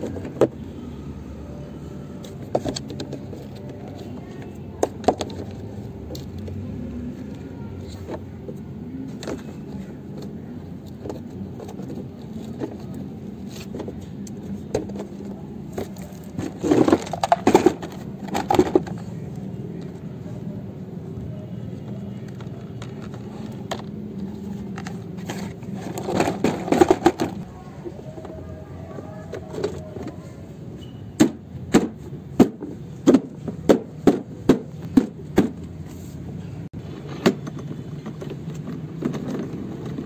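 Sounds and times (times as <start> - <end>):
plastic parts clicking and knocking: 2.3 - 6.6, 7.8 - 20.0, 21.8 - 27.5, 36.8 - 40.0.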